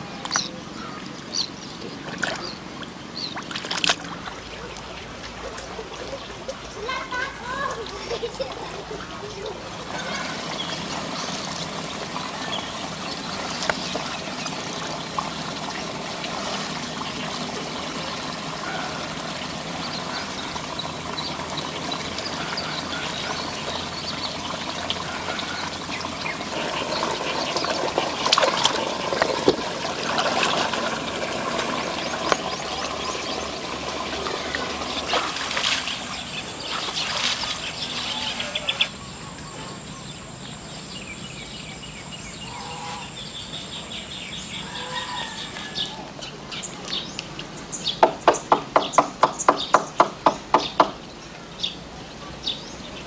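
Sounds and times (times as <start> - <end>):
water sloshing while wading: 1.8 - 38.5
high insect buzz: 9.6 - 14.2, 14.8 - 26.6.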